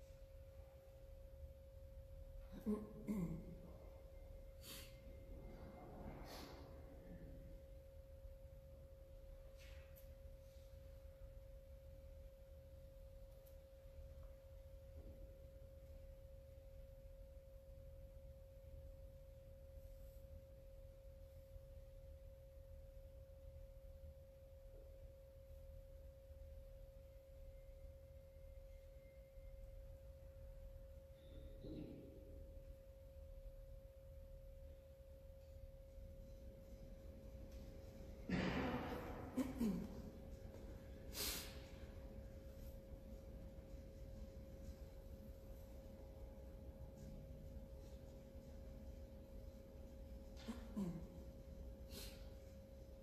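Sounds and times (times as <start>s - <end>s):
faint steady pure tone: 0.0s - 38.4s.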